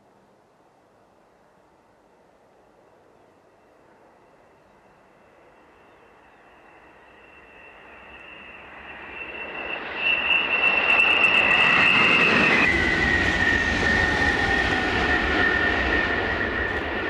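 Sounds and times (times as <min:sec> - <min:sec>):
high-speed electric train passing: 0:01.4 - 0:17.0.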